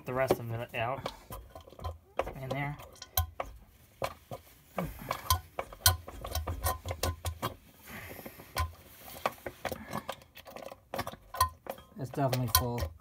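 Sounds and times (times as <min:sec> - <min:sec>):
hand pump clicking and knocking: 0:00.0 - 0:07.6, 0:08.3 - 0:13.0.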